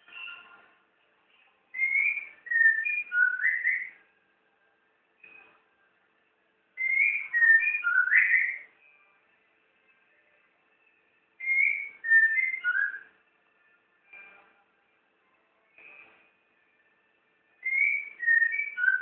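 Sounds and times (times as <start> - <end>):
bird singing whistled notes: 1.7 - 4.1, 6.8 - 9.0, 11.4 - 13.3, 17.6 - 19.0.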